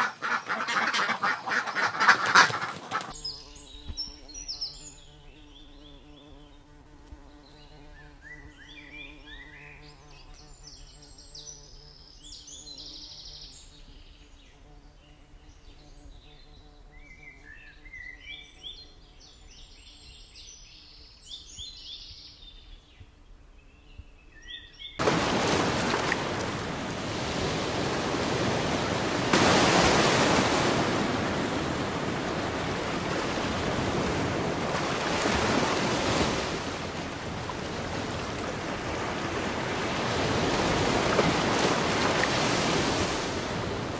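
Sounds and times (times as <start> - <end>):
small birds chirping: 2.9 - 25.0.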